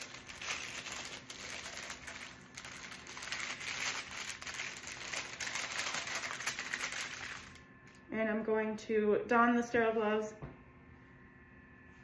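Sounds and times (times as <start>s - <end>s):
paper wrapper crinkling: 0.0s - 7.6s.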